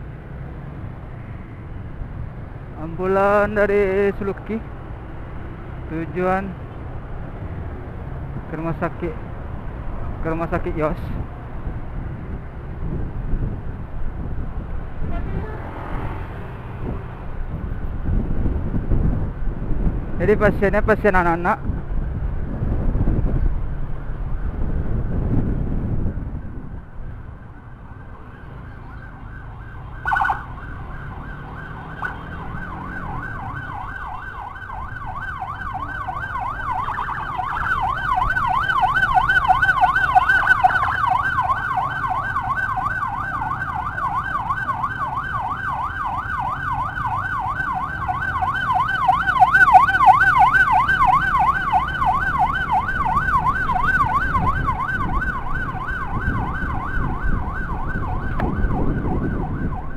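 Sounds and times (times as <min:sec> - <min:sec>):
road noise: 0:00.0 - 0:59.9
electronic siren warbling: 0:28.6 - 0:59.9
motorcycle engine: 0:30.4 - 0:34.4
siren blip: 0:31.8 - 0:34.5, 0:48.6 - 0:59.9.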